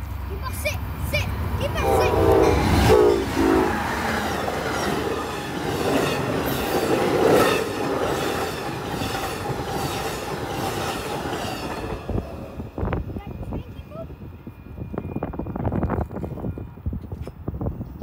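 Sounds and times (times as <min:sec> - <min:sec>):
train horn blasts: 0:01.8 - 0:04.1
train wheels clattering on rails: 0:04.0 - 0:13.7.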